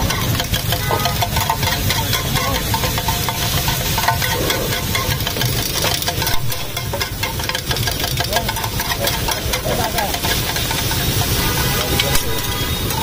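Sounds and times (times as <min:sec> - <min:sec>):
spatulas scraping on griddle: 0:00.0 - 0:13.0.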